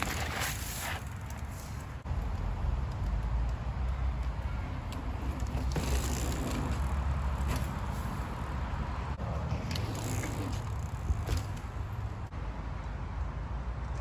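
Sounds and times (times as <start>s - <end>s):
bike tyres rolling over dirt: 0.0s - 2.0s, 4.8s - 8.5s, 9.4s - 12.0s.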